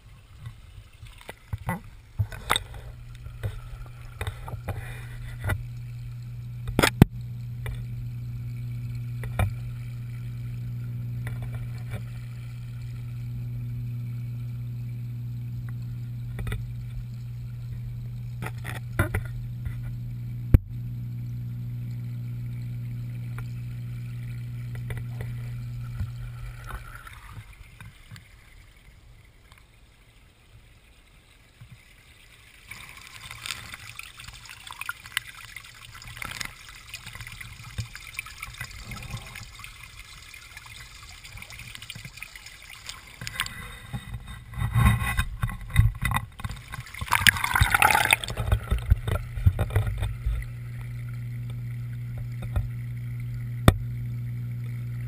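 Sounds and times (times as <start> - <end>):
water splashes and knocks: 0.0 - 5.8, 9.2 - 9.8, 17.7 - 20.0, 24.7 - 28.5, 32.6 - 52.8, 53.6 - 53.9
low underwater hum: 0.0 - 55.0
water trickling and gurgling: 0.0 - 55.0.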